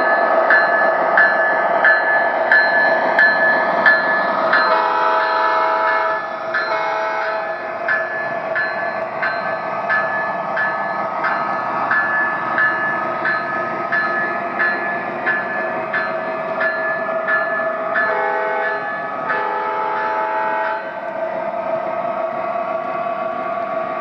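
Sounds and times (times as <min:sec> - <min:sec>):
train horn chord: 0:04.7 - 0:07.6, 0:18.1 - 0:20.9.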